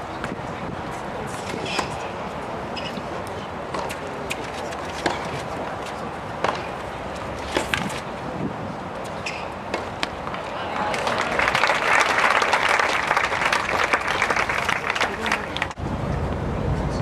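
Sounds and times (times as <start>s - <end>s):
crowd murmur: 0.0s - 15.8s
tennis ball bouncing on court: 1.3s - 2.1s, 2.8s - 8.1s, 9.0s - 10.5s.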